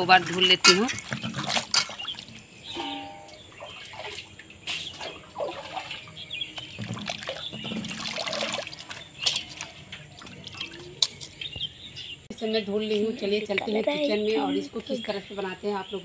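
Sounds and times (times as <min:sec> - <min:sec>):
water dripping: 0:00.0 - 0:11.9
water sloshing in a steel basin: 0:00.0 - 0:12.2.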